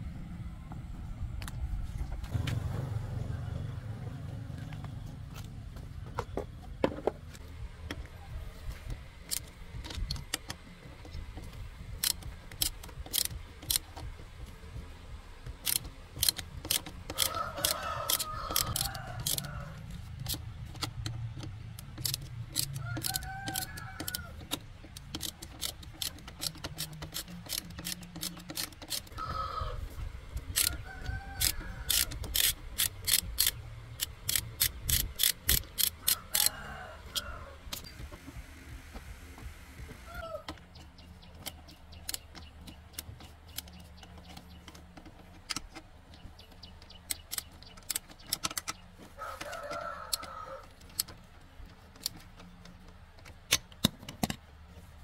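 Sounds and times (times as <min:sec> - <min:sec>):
low steady rumble: 0:00.0 - 0:28.4
metallic tool clicks and taps: 0:12.0 - 0:14.1, 0:15.5 - 0:19.5, 0:20.2 - 0:29.2, 0:31.4 - 0:36.5, 0:41.3 - 0:48.8.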